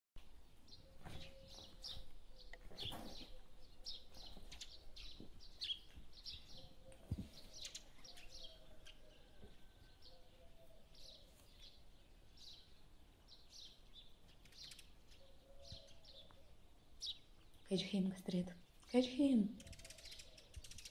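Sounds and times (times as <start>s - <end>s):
faint bird chirps: 0.7s - 20.9s.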